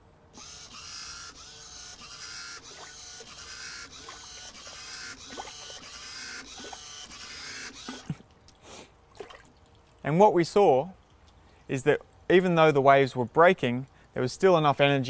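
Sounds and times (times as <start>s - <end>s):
wave generator motor whine: 0.4s - 8.3s.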